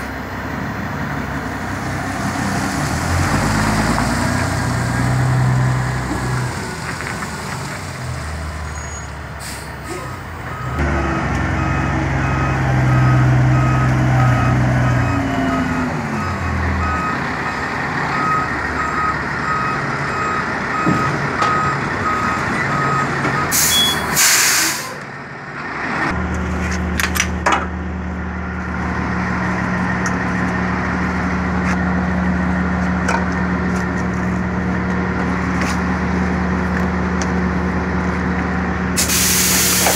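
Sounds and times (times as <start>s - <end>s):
diesel truck engine: 0.0s - 39.9s
air brake hiss: 9.4s - 10.2s, 23.5s - 25.0s, 39.0s - 39.9s
reversing alarm beeping: 10.5s - 10.8s, 11.5s - 24.2s.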